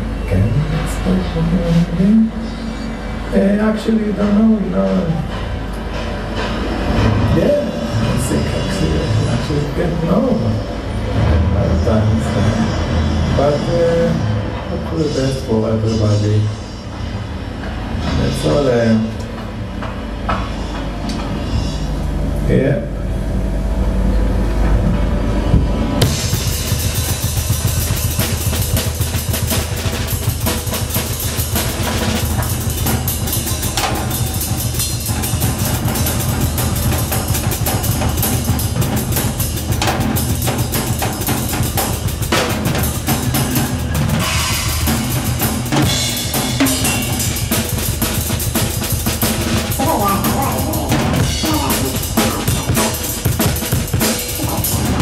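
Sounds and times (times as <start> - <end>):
low bass drone: 0.0 - 55.0
steady low bass line: 0.0 - 55.0
live drum kit playing fast: 26.0 - 55.0.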